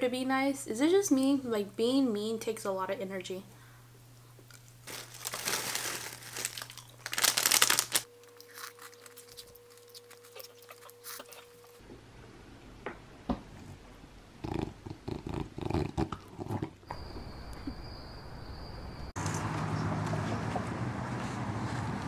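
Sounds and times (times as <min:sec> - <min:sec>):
dog snuffling and eating: 0:08.2 - 0:11.8, 0:14.4 - 0:17.3
outdoor street noise: 0:16.9 - 0:22.0.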